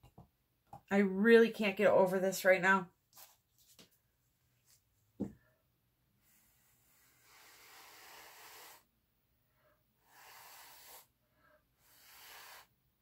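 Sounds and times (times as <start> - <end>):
faint breathing: 6.2 - 13.0.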